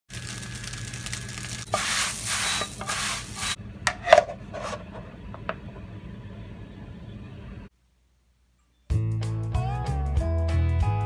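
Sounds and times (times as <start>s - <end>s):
rough rubbing and scraping: 2.3s - 5.1s
steady low hum: 3.2s - 8.6s.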